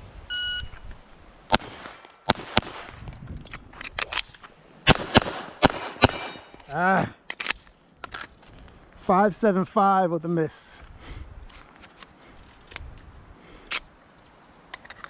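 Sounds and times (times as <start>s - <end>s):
pistol gunshots: 1.5s - 3.0s, 4.8s - 6.6s.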